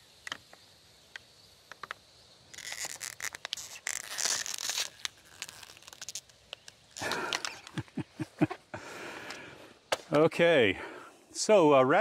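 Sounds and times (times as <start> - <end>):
rustling and crunching: 1.7 - 8.7.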